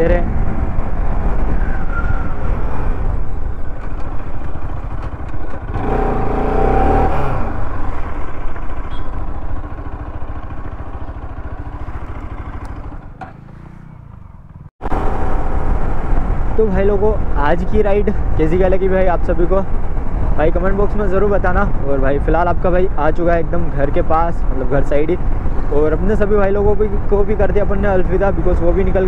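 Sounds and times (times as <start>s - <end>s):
wind rushing: 0.0s - 4.9s
motorcycle engine running: 0.0s - 22.8s.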